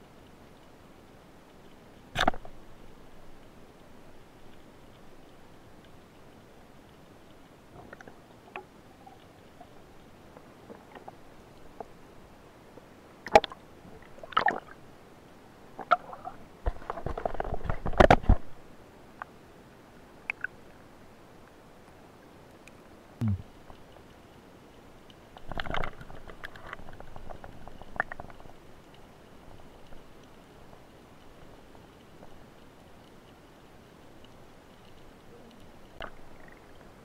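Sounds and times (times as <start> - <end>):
muffled underwater knocks and clicks: 15.8 - 18.5, 25.4 - 28.5.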